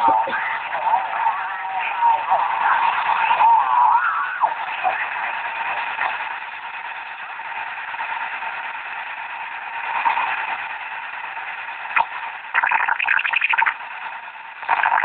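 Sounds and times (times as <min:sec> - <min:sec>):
radio static hiss: 0:00.0 - 0:15.0
rapid choppy crackle: 0:04.3 - 0:15.0.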